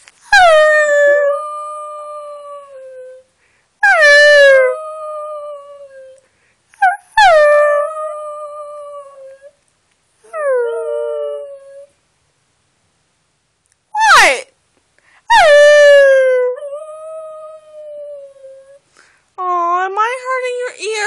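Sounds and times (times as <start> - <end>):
small dog howling: 0.3 - 3.2, 3.8 - 6.2, 6.8 - 9.5, 10.2 - 11.9, 15.3 - 18.8.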